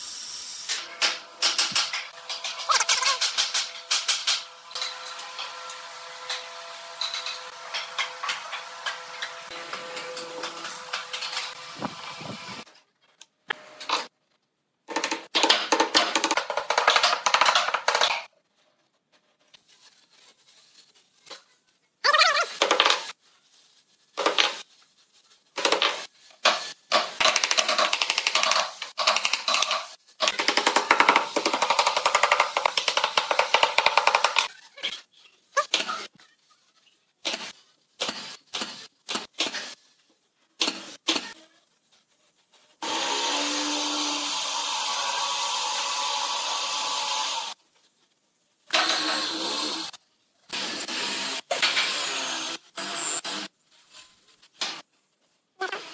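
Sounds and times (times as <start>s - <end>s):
pneumatic nail gun shots: 37.2s - 39.8s, 40.6s - 41.4s, 48.7s - 53.5s.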